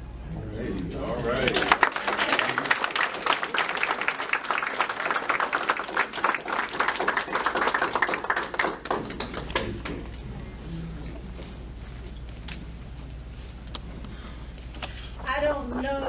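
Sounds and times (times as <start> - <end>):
audience applauding: 1.2 - 10.2.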